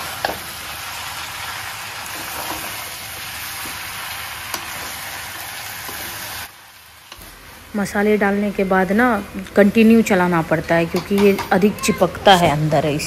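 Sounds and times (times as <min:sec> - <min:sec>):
chicken sizzling in a pan: 0:00.0 - 0:07.7
spoon scraping a pan: 0:02.1 - 0:02.8
spoon knocking: 0:10.9 - 0:11.7.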